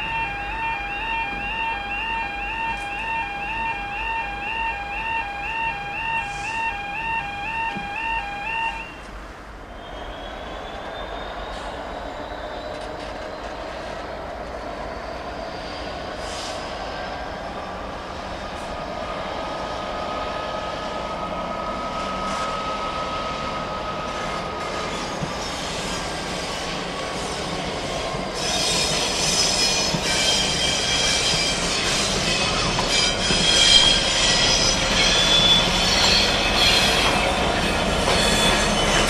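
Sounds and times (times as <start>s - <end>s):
diesel locomotive engine: 0.0s - 39.0s
high wheel squeal: 9.7s - 17.6s, 20.2s - 39.0s.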